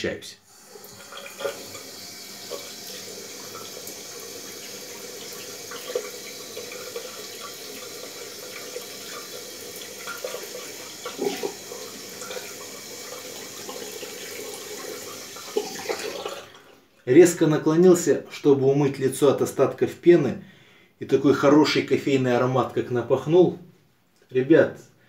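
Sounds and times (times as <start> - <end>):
tap water running into sink: 0.6 - 16.8.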